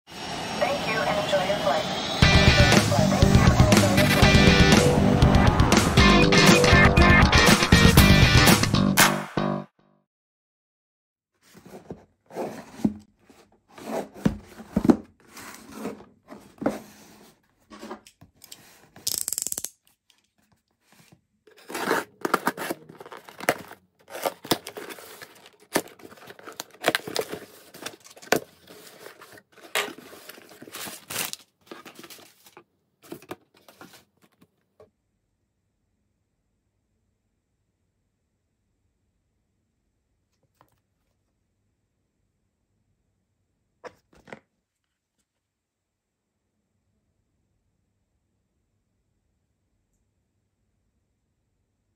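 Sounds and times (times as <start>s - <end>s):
scraping and rustling: 11.4s - 19.0s, 20.2s - 34.6s
tape and cardboard tearing: 21.5s - 32.3s.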